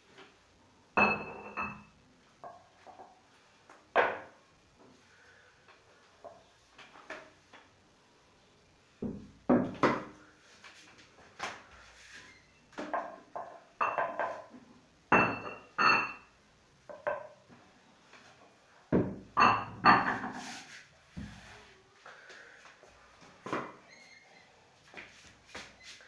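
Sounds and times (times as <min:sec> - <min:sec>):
knocks and thumps: 0:18.9 - 0:20.4.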